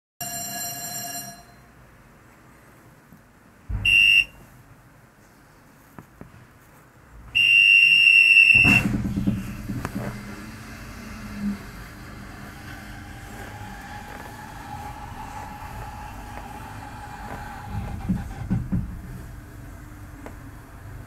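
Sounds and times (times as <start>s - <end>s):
electric buzzer beeps: 3.9s - 4.3s
cabin moving low rumble: 8.4s - 21.0s
cable car cabin jolt: 8.5s - 21.0s.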